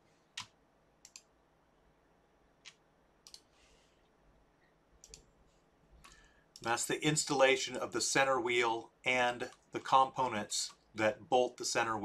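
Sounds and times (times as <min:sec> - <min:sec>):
computer mouse clicks: 0:00.4 - 0:01.3, 0:02.6 - 0:03.5, 0:05.0 - 0:05.3.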